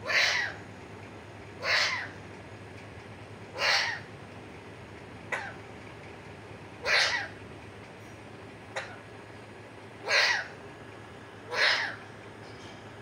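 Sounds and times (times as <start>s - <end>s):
parakeet squawking: 0.0s - 0.6s, 1.6s - 2.2s, 3.5s - 4.1s, 6.8s - 7.4s, 10.0s - 10.6s, 11.5s - 12.1s.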